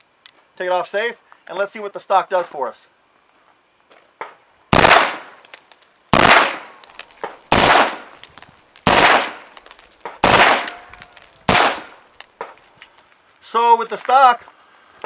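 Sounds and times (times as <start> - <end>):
machine pistol firing bursts: 4.7 - 5.3, 6.1 - 6.7, 7.5 - 8.1, 8.8 - 9.5, 10.2 - 10.8, 11.5 - 12.0.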